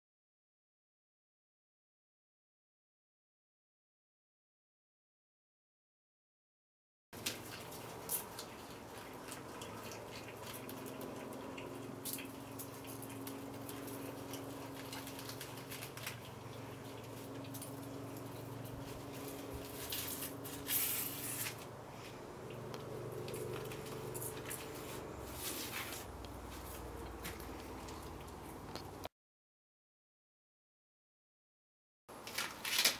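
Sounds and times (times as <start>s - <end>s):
steady low hum: 7.2s - 29.1s
corn husk crunching and rustling: 13.3s - 21.7s, 23.2s - 28.8s, 32.2s - 32.9s.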